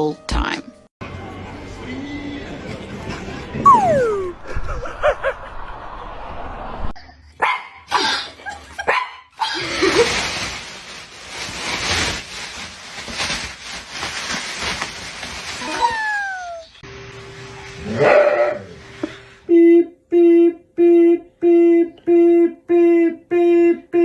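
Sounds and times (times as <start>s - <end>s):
plastic bag rustling: 9.6s - 16.7s.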